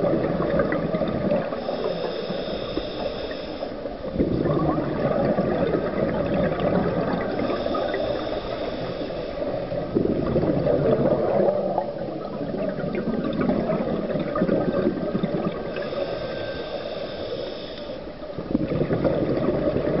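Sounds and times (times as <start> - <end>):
underwater bubbles gurgling: 0.0 - 20.0.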